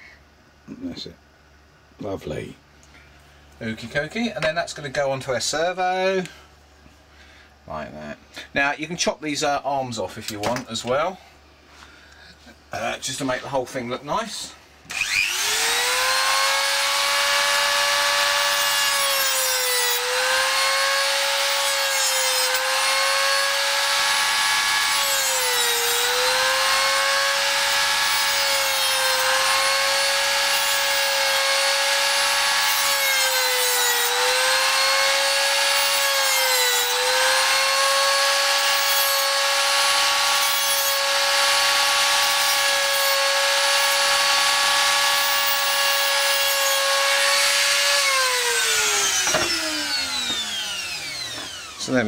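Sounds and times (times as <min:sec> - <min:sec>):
rotary tool cutting disc whine: 0:14.9 - 0:52.0.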